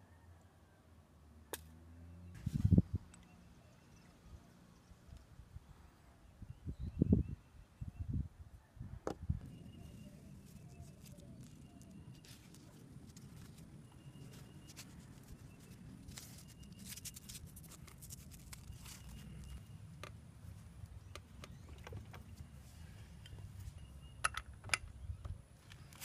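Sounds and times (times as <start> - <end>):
velcro strap rustling and crackling: 10.4 - 19.6.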